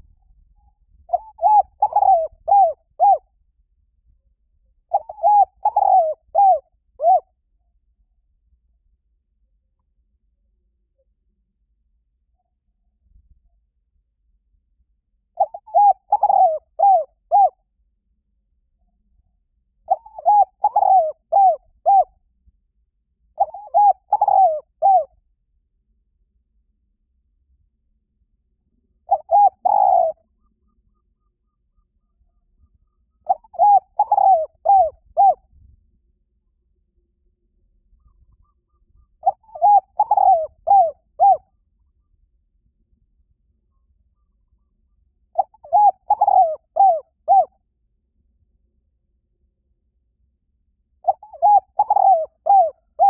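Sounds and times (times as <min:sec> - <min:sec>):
dove cooing: 0:01.1 - 0:03.3, 0:04.9 - 0:07.3, 0:15.4 - 0:17.6, 0:19.9 - 0:22.1, 0:23.4 - 0:25.1, 0:29.0 - 0:31.3, 0:32.0 - 0:35.4, 0:38.0 - 0:41.5, 0:45.4 - 0:47.5, 0:51.0 - 0:53.0.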